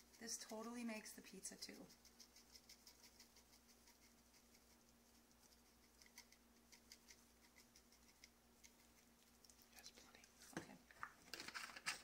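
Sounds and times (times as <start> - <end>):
seasoning shaker ticking: 0.0 - 9.8
low steady hum: 0.0 - 12.0.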